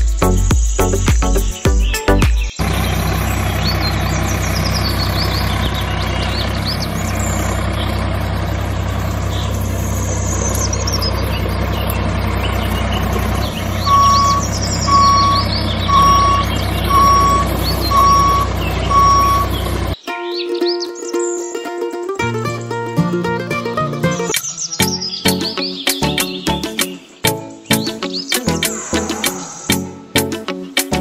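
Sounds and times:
birds chirping: 0.0 - 21.8, 24.0 - 31.0
reversing beeper: 2.6 - 20.0
tractor diesel engine running: 2.6 - 20.0.

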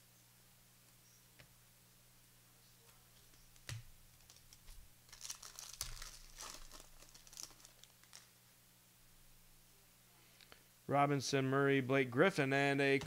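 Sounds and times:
plastic wrapper crinkling and tearing: 4.1 - 8.4.

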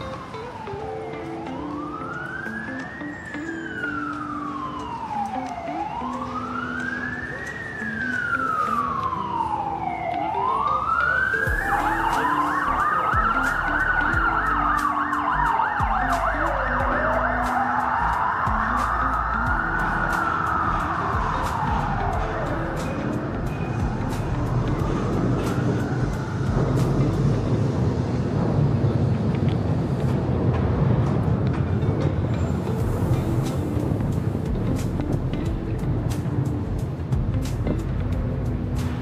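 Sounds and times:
fast yelping siren: 0.0 - 26.5
wailing siren: 0.0 - 29.3.

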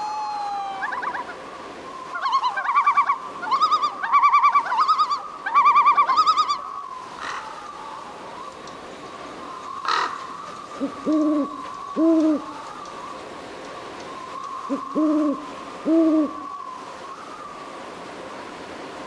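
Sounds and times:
owl hooting: 9.5 - 13.2, 14.1 - 17.6.

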